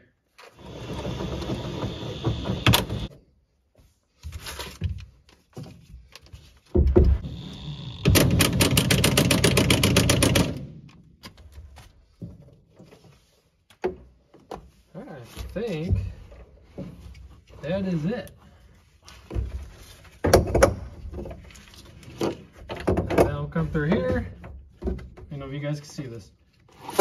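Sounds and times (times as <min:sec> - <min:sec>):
impact driver whirring and hammering: 0:00.6 - 0:03.1, 0:07.0 - 0:10.8.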